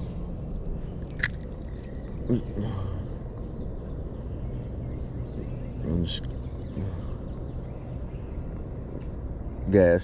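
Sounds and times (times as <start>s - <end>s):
faint insect drone: 0.0s - 10.0s
low river rumble: 0.0s - 10.0s
sharp click: 1.0s - 1.5s.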